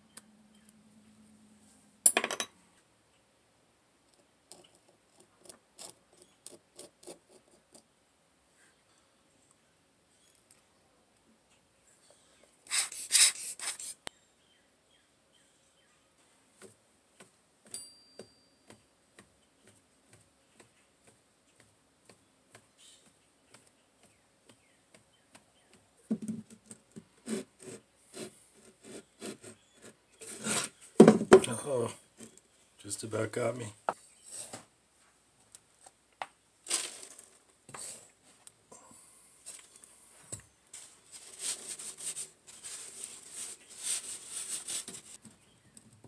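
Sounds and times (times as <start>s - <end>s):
brush sweeping sand off wood: 12.7s - 14.0s, 40.7s - 45.2s
wooden knocks and rubbing: 26.1s - 27.4s, 28.8s - 31.5s.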